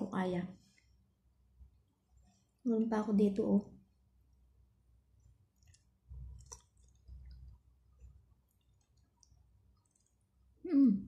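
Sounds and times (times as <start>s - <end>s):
wet mouth chewing smacks: 5.2s - 10.4s.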